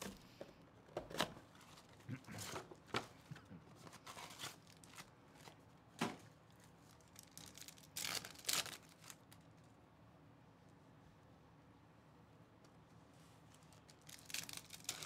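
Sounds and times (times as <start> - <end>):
foil wrapper tearing and crinkling: 3.9 - 5.5, 6.8 - 9.5, 13.7 - 15.0.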